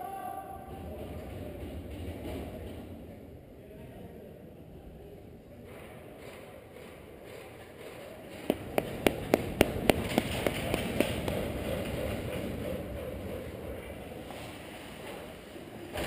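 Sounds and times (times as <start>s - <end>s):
ice rink background noise: 0.0s - 16.0s
sharp rhythmic taps: 8.3s - 13.1s.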